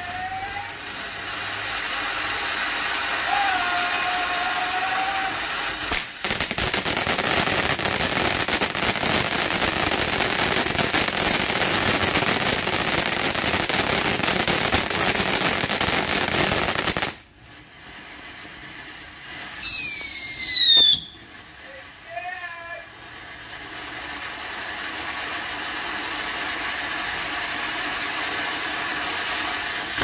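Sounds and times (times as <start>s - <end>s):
fireworks fountain crackling: 0.0s - 30.0s
falling whistle: 19.6s - 21.2s.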